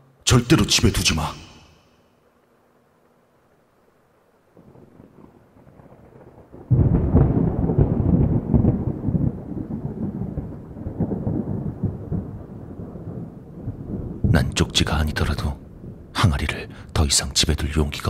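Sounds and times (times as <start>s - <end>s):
rain falling: 2.3s - 18.0s
thunder rumbling: 4.6s - 18.0s.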